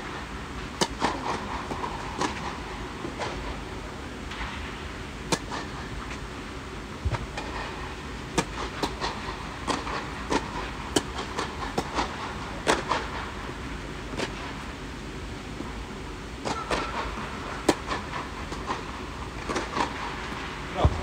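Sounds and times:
low background noise: 0:00.0 - 0:21.0
tennis ball hit by racquets: 0:00.8 - 0:03.6, 0:05.3 - 0:06.2, 0:08.3 - 0:13.2, 0:16.4 - 0:20.1.

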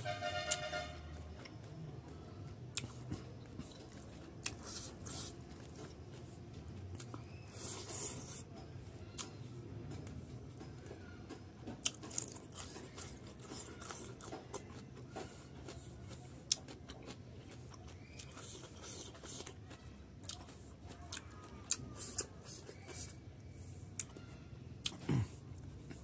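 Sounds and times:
man chewing: 0:02.7 - 0:08.6, 0:11.8 - 0:24.2.

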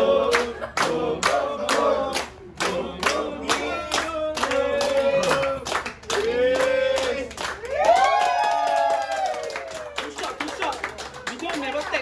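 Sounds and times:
group singing: 0:00.0 - 0:07.6
rhythmic hand clapping: 0:00.2 - 0:12.0.

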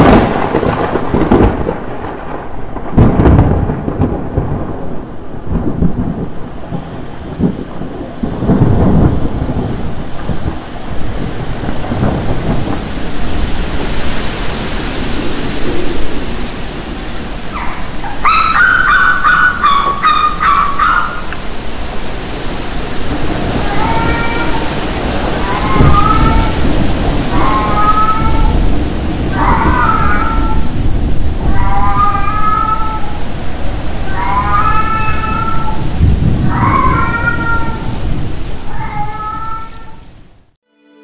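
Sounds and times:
rolling thunder: 0:00.0 - 0:40.5
steady rain: 0:00.0 - 0:40.6
high wavering cry: 0:17.5 - 0:21.4, 0:23.5 - 0:30.8, 0:31.4 - 0:33.2, 0:34.0 - 0:35.8, 0:36.5 - 0:37.9.

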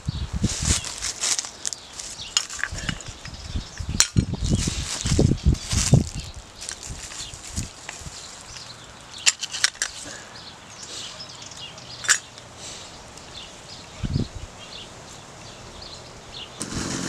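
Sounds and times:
footsteps in dry leaves and twigs: 0:00.4 - 0:03.4, 0:04.3 - 0:10.2.

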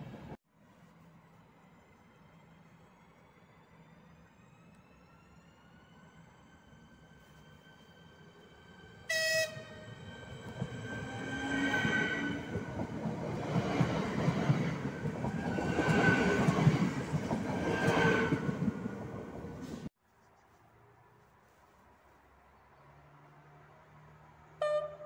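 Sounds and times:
train horn blast: 0:09.1 - 0:09.8, 0:24.6 - 0:25.0
train wheel rumble: 0:09.1 - 0:19.9.

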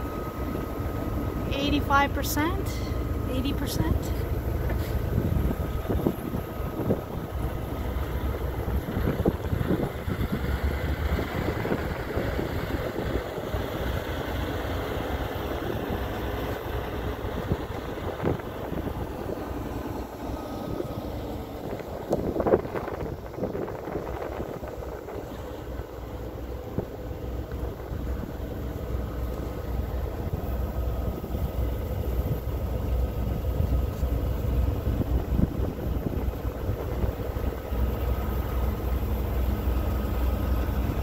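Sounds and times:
wind rumbling on microphone: 0:04.6 - 0:13.9, 0:17.2 - 0:19.6, 0:20.6 - 0:25.9, 0:30.2 - 0:38.6.

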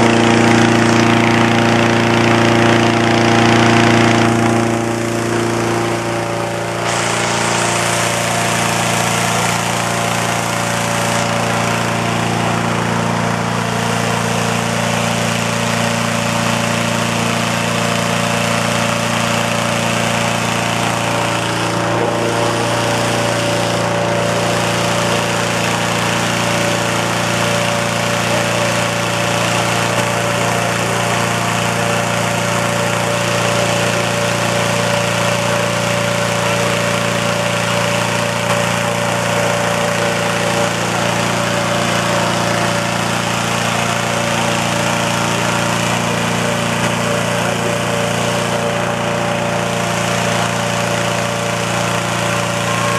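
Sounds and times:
engine-driven inflator fan running: 0:00.0 - 0:52.9.

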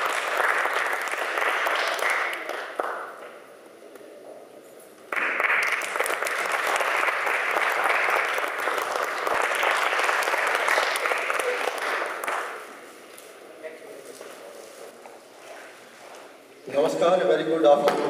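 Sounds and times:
audience applauding: 0:00.0 - 0:03.3, 0:05.1 - 0:12.7.

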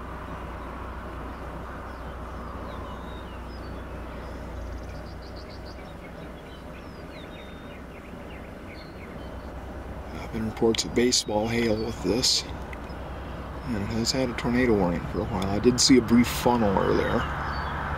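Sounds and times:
birds chirping and singing: 0:00.0 - 0:17.9
steady low rumble: 0:00.0 - 0:17.9.

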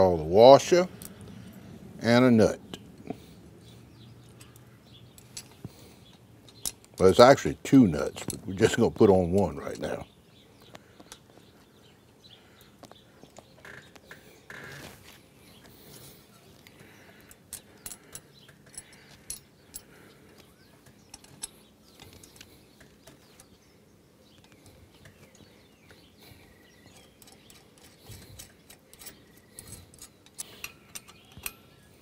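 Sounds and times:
small metal clicks and taps: 0:04.2 - 0:07.1, 0:17.2 - 0:23.5, 0:26.8 - 0:31.7
faint bird chirps: 0:15.4 - 0:32.0.

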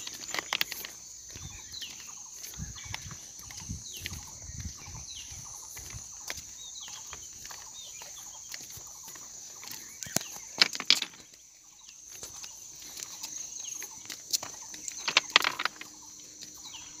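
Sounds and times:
falling bird calls: 0:00.0 - 0:17.0
insect drone: 0:00.0 - 0:17.0
sharp clicks and knocks: 0:15.0 - 0:15.9.

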